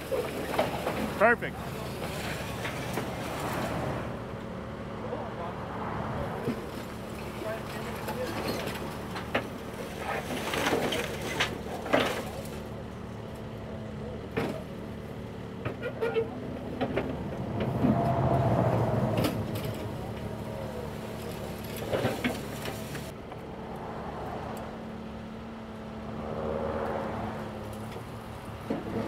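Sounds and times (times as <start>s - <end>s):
excavator diesel engine: 0.0s - 29.0s
scrap metal clanks and scrapes: 1.8s - 3.8s, 6.5s - 12.6s.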